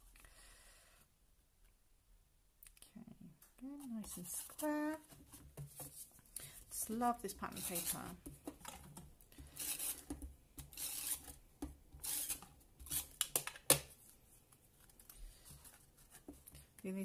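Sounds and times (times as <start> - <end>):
paper and card rustling: 3.7 - 11.3, 12.0 - 16.8.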